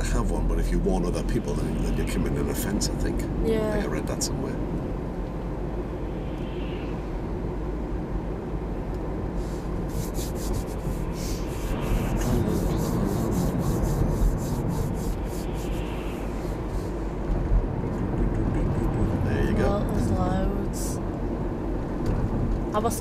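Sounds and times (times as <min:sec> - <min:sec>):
engine and tyre rumble: 0:00.0 - 0:23.0
rapid scratchy rasping: 0:09.9 - 0:17.0.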